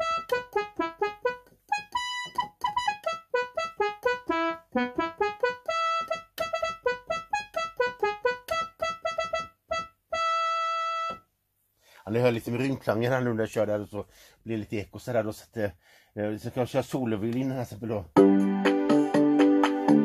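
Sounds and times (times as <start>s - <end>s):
keyboard trumpet melody: 0.0s - 11.3s, 18.2s - 20.0s.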